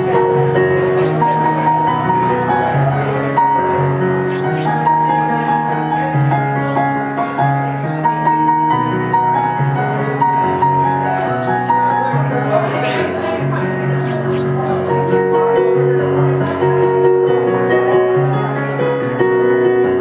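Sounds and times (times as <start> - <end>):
slow piano piece: 0.0 - 20.0.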